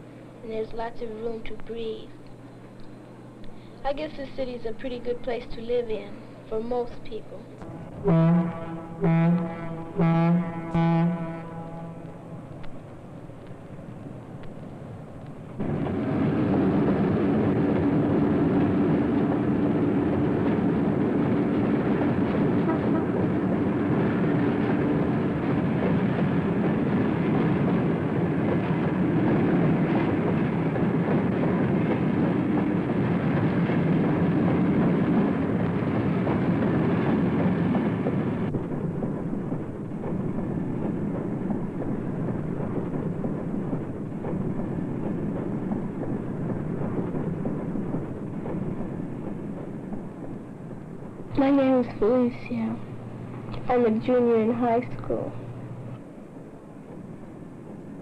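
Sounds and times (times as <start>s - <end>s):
loud mechanical rumble with hum: 0.0s - 10.6s.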